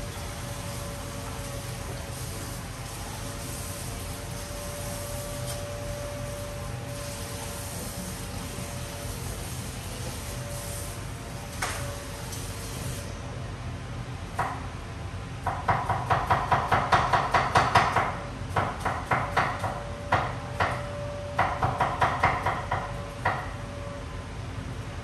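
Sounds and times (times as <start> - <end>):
sharp knocks of food preparation: 15.5 - 20.8.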